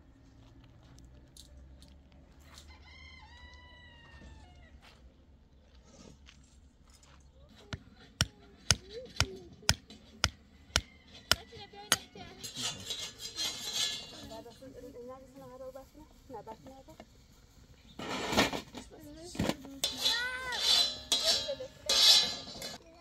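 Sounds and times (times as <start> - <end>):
rooster crowing: 2.5 - 4.9, 10.7 - 12.5.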